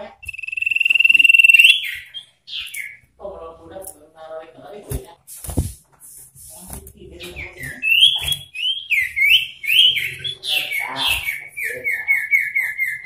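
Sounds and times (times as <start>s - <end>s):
bird singing whistled notes and trill: 0.1s - 3.0s, 7.2s - 13.0s.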